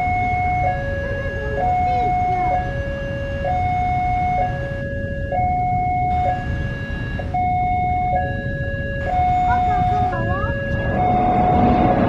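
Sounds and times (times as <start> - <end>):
level crossing two-tone alarm: 0.0 - 12.0
low rumble: 9.0 - 12.0.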